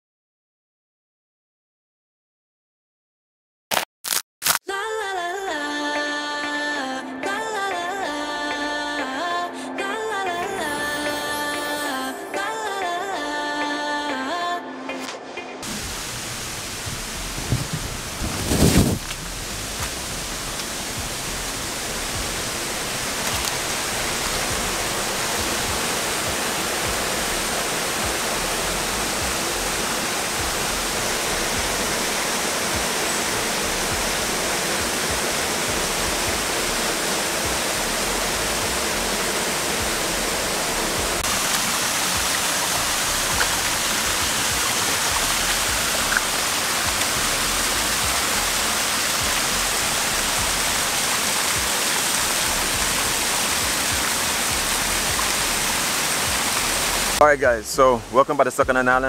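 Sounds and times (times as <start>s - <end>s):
water rushing from a cascade: 15.6s - 57.4s.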